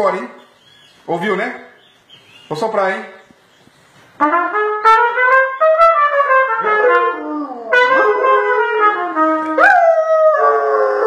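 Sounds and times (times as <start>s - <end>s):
trumpet playing held notes: 4.2s - 9.7s
dog howling: 6.6s - 11.0s.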